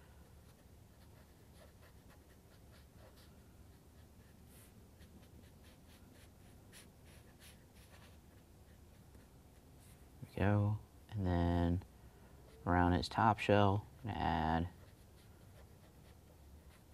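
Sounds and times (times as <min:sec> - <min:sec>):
marker pen scratching on paper: 0:00.4 - 0:10.0, 0:14.7 - 0:16.9.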